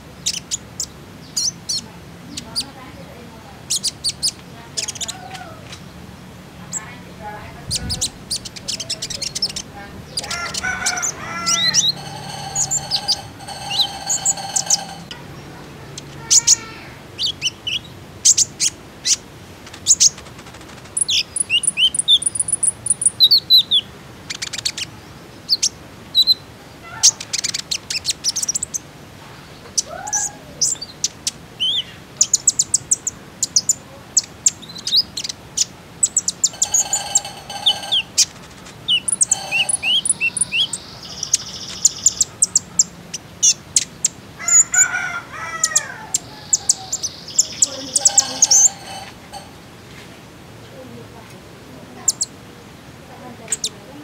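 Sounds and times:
bird singing high chirps and trills: 7.7s - 19.2s, 21.0s - 26.5s, 29.6s - 44.7s, 46.0s - 49.6s
lower buzzy bird phrase: 39.0s - 41.2s, 45.9s - 49.6s.

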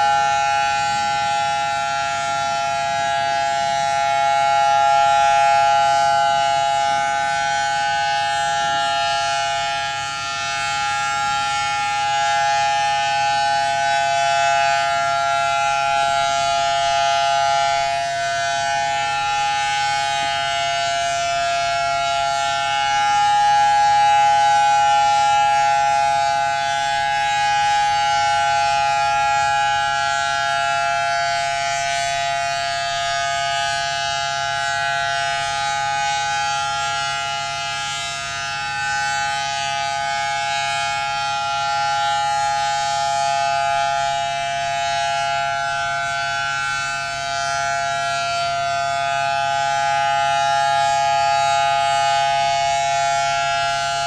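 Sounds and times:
warning siren steady tone: 0.0s - 54.0s.

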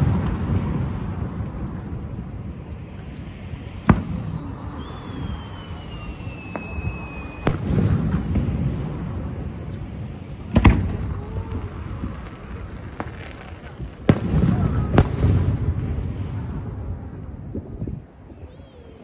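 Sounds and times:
fireworks bangs: 0.0s - 18.1s
firework whistle falling in pitch: 4.3s - 7.7s.

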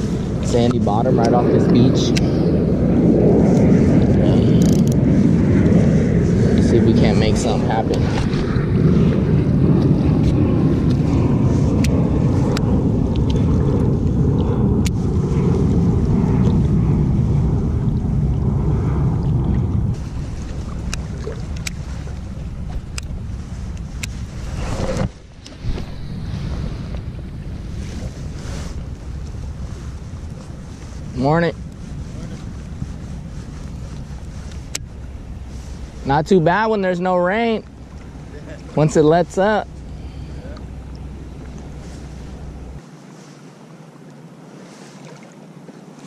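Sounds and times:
wind: 0.0s - 46.0s
jacket fabric rubbing on camera: 23.3s - 26.9s, 27.6s - 36.2s.

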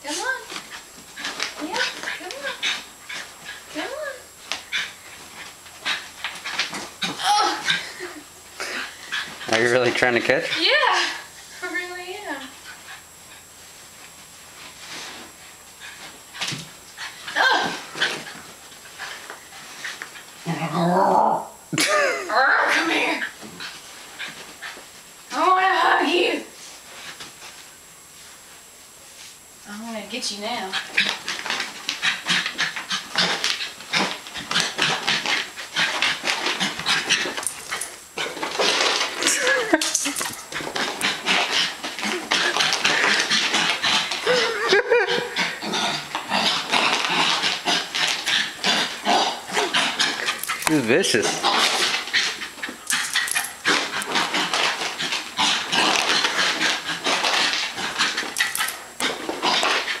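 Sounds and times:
rustling and scrabbling on carpet: 12.6s - 20.5s, 30.8s - 44.3s.

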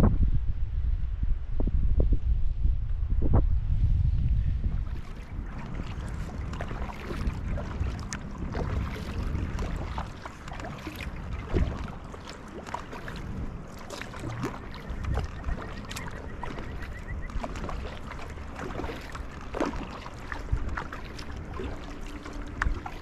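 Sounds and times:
wind rumble on microphone: 0.0s - 23.0s
paddle splashing and dripping: 4.6s - 23.0s.

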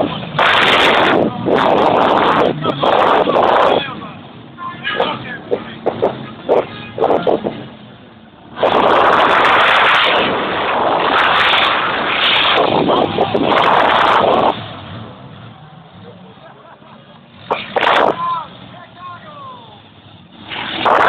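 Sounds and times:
loud distorted engine running hard: 0.0s - 4.2s, 8.5s - 15.4s.

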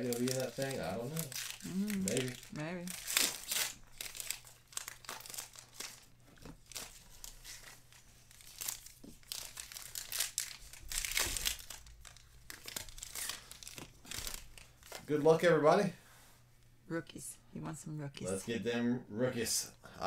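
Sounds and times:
card wrappers tearing and crinkling: 0.0s - 15.4s.

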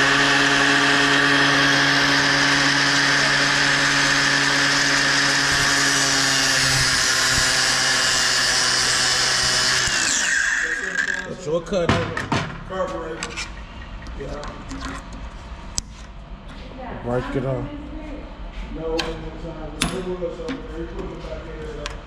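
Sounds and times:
angle grinder motor whine: 0.0s - 11.4s.

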